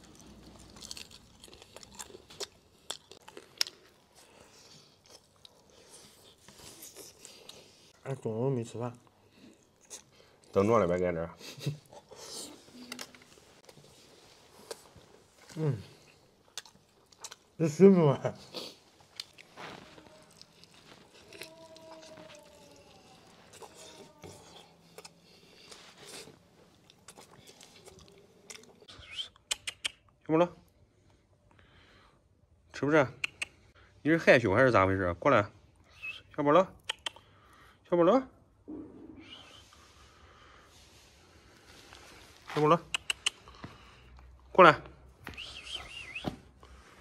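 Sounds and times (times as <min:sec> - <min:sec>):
person chewing food: 0:00.0 - 0:07.9, 0:09.3 - 0:10.6, 0:11.7 - 0:17.6, 0:18.4 - 0:28.9, 0:41.8 - 0:44.5.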